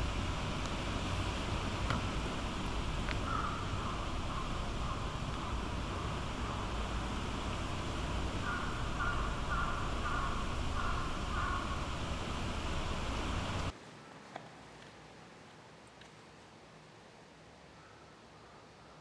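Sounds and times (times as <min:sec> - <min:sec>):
low outdoor rumble: 0:00.0 - 0:13.8
crow cawing: 0:03.1 - 0:07.3, 0:07.9 - 0:13.0.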